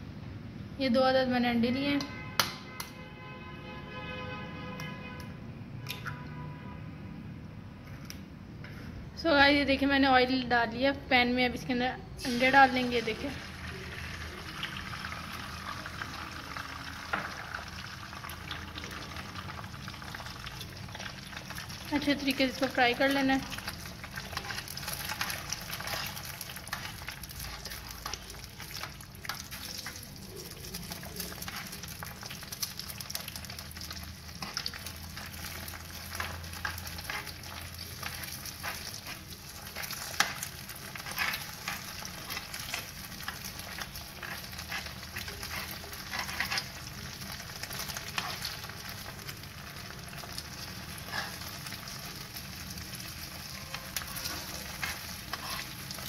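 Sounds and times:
eggs sizzling in frying pan: 12.2s - 56.0s
metal spoon scraping and tapping pan: 22.6s - 30.0s, 34.3s - 46.8s, 54.0s - 56.0s.

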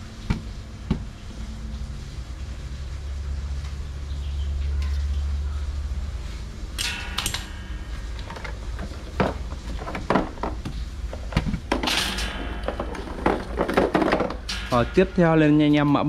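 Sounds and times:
metal parts knocking and clicking: 6.8s - 15.3s.

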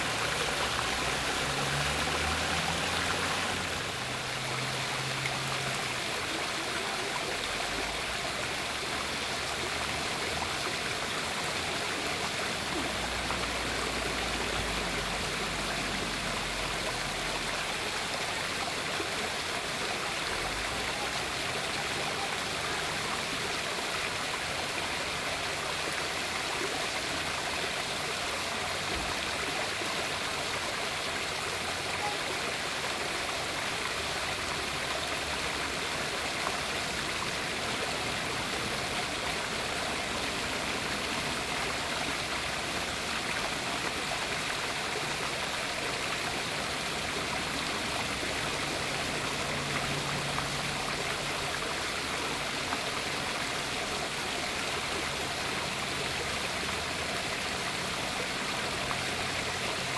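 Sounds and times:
small waterfall splashing: 0.0s - 59.9s.

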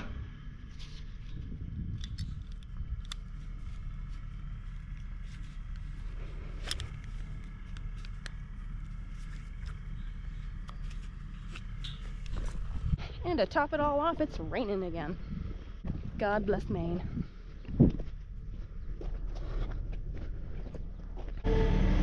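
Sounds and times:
wind rumble on microphone: 0.0s - 21.1s
strap and buckle rustling: 0.7s - 9.9s.

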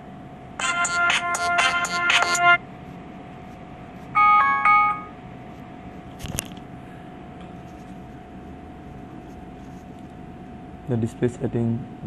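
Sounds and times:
faint steady whine: 0.0s - 12.0s
electronic ringtone: 0.6s - 2.6s, 4.2s - 5.2s.

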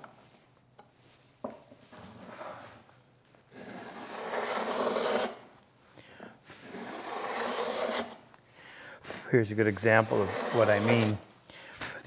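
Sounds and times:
plane blade rasping wood: 3.6s - 5.4s, 6.6s - 8.2s, 9.8s - 11.2s.

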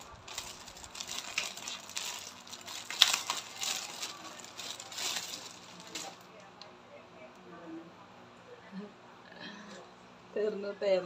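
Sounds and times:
plastic bags crinkling: 0.0s - 6.4s.

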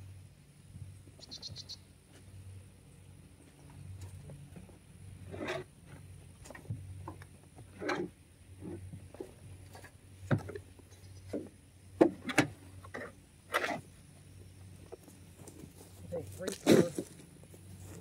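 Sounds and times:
shovels scraping compost: 5.2s - 6.5s, 12.1s - 13.9s, 15.4s - 18.0s.

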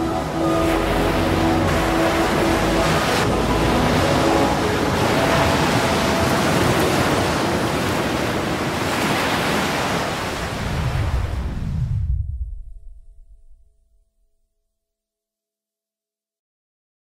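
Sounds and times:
faint music notes: 0.0s - 7.6s
rushing water: 0.0s - 11.7s
wind noise: 0.0s - 13.7s.

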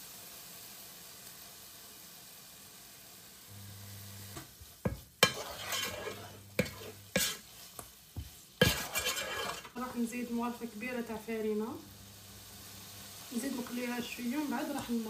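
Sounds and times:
food sizzling in a frying pan: 0.0s - 15.0s
wooden spoon knocking and scraping pan: 4.4s - 10.1s.

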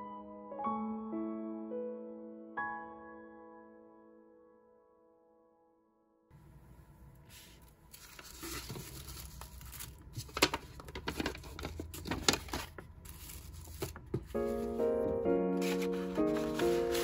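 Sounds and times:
paper rustling and crinkling: 7.3s - 17.0s
paper tearing: 7.9s - 14.9s, 15.6s - 17.0s.

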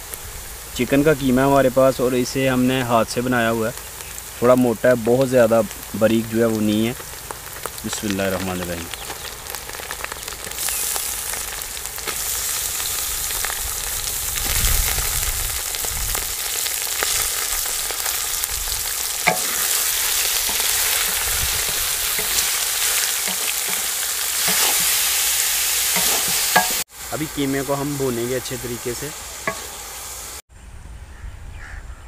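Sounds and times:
meat sizzling in hot oil: 0.0s - 30.4s
wooden spoon knocking on pot: 19.3s - 19.6s.

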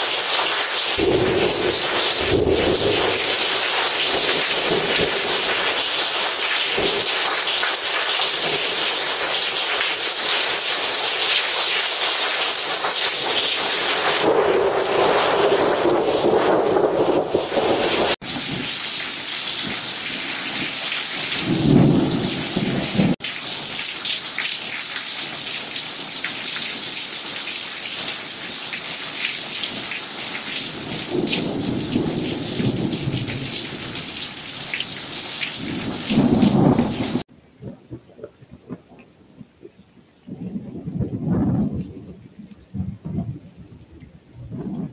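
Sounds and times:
heavy rain pouring: 0.0s - 44.9s
rolling thunder: 1.0s - 7.5s, 14.1s - 23.2s, 30.7s - 39.6s, 40.2s - 44.9s.

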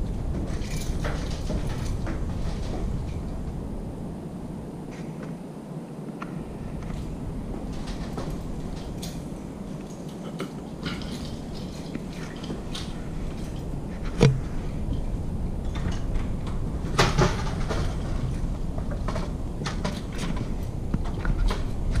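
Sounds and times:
handheld camera rumble: 0.0s - 5.4s, 6.0s - 22.0s
sharp knocks: 14.1s - 14.6s.

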